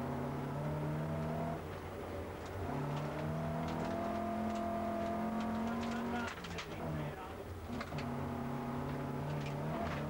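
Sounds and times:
car engine revving from inside: 0.0 - 1.6, 2.7 - 6.2, 7.8 - 10.0.

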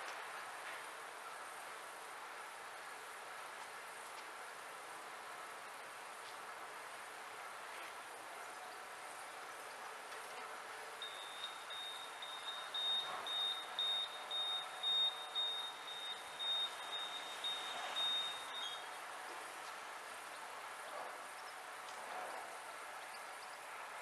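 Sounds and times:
high electronic warning beeps: 11.0 - 18.9.

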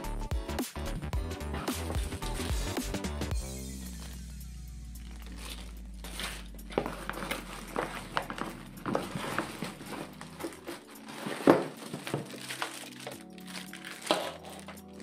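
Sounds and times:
packaging clicks and rustles: 5.0 - 15.0.

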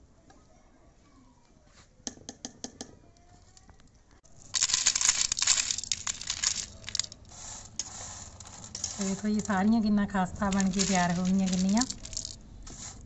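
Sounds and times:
dry crackling rattle of crumbled snack: 4.3 - 13.0.

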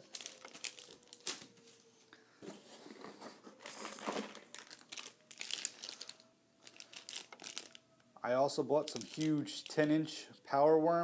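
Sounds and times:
plastic packets crinkling: 0.0 - 1.8, 3.6 - 7.9, 8.8 - 9.9.

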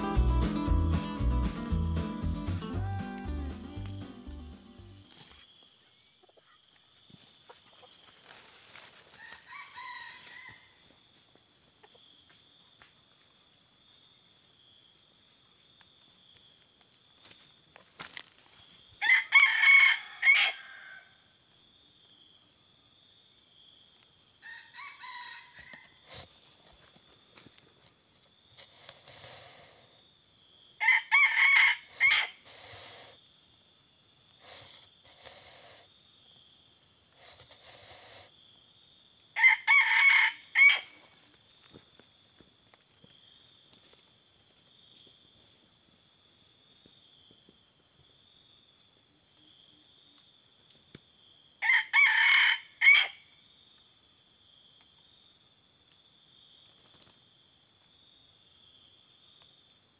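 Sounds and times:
insects droning: 0.0 - 59.9
rooster crowing: 9.2 - 10.8, 19.0 - 21.2, 24.4 - 26.0, 30.8 - 32.4, 39.4 - 41.0, 51.6 - 53.2.

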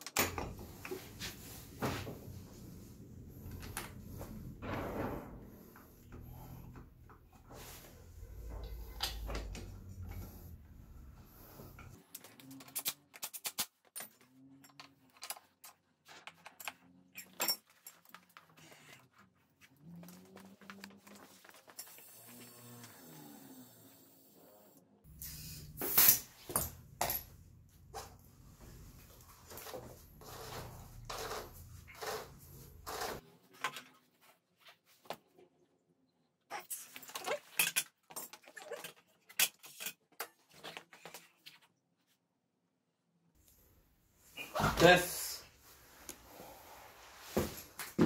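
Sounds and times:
metal tools clinking and rattling: 12.6 - 18.5, 37.1 - 40.0.

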